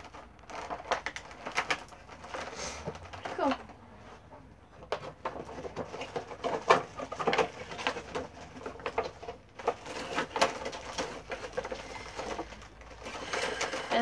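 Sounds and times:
plastic packaging crinkling: 0.0s - 3.7s, 4.9s - 14.0s.

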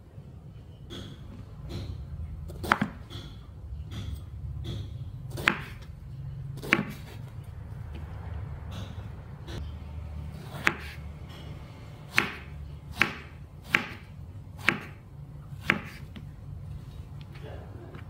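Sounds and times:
low steady hum: 0.0s - 18.0s
knife chopping on wooden board: 0.9s - 5.9s, 6.6s - 7.2s, 10.4s - 11.0s, 12.1s - 15.0s, 15.6s - 16.3s.

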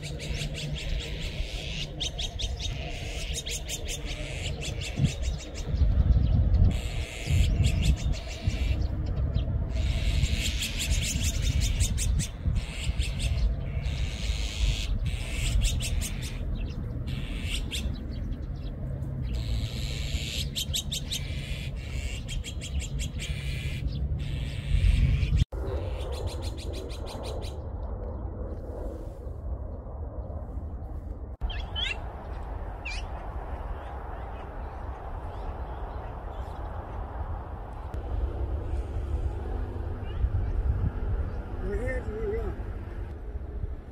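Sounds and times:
magpies calling: 0.0s - 5.9s, 6.6s - 27.6s, 31.4s - 32.0s
steady low rumble: 0.0s - 43.9s.

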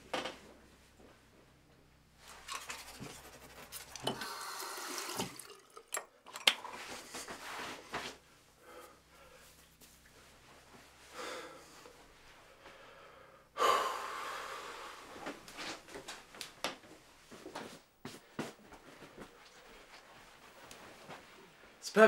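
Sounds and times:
man breathing hard: 8.6s - 9.6s, 11.1s - 15.3s
footsteps on floor: 15.2s - 21.8s.

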